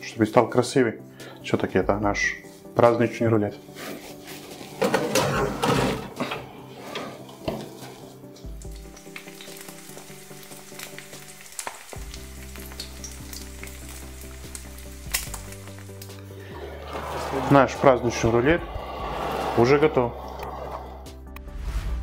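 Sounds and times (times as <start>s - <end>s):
soft background music: 0.0s - 22.0s
meat sizzling in oven: 7.6s - 17.7s.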